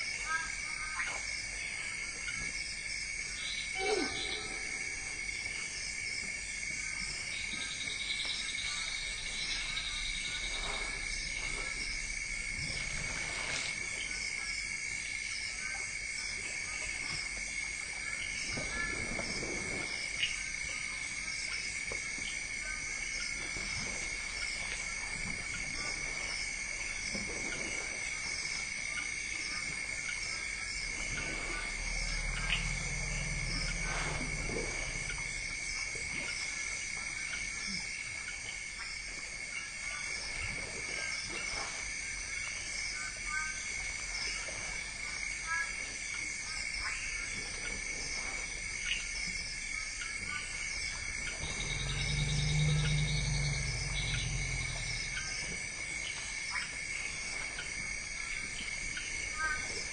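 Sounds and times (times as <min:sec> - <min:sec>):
insect chorus: 0:00.0 - 0:59.9
elephants feeding swishes and knocks: 0:10.2 - 0:14.3, 0:18.4 - 0:20.2, 0:29.8 - 0:36.6.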